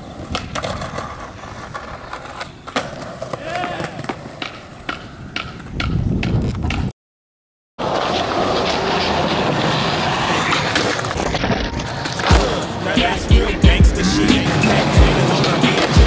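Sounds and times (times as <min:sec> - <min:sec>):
skateboard clacks: 0:00.0 - 0:06.9, 0:11.8 - 0:13.1, 0:14.5 - 0:16.0
wheels rolling on concrete: 0:00.0 - 0:06.9, 0:07.8 - 0:13.4, 0:14.2 - 0:16.0.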